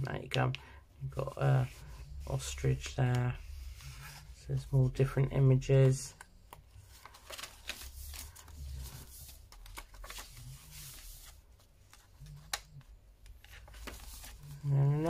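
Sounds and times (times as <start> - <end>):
paper pages rustling: 5.8 - 15.0.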